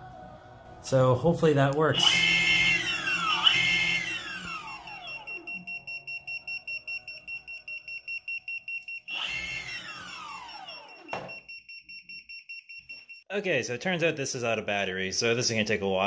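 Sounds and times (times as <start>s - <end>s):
electric motor whining: 1.9s - 5.6s, 9.0s - 11.2s
electronic beeper pulsing: 2.0s - 12.9s.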